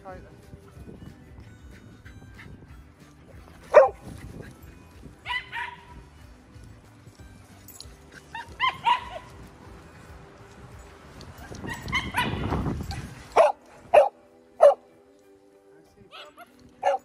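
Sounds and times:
dogs barking: 3.6 - 6.1, 7.7 - 9.4, 11.3 - 14.9, 16.1 - 17.0.

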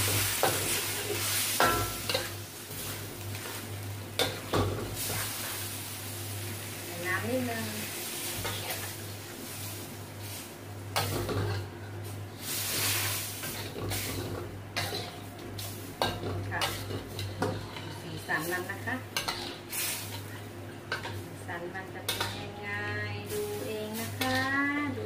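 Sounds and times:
curry simmering sizzle: 0.0 - 25.0
ladle scraping a wok: 8.2 - 21.2, 22.1 - 22.6.

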